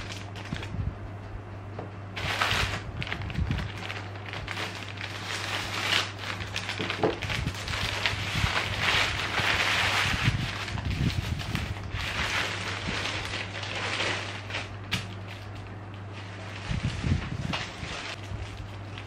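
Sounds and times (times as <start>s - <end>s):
plastic bag crinkling: 0.0s - 0.8s, 2.2s - 19.0s.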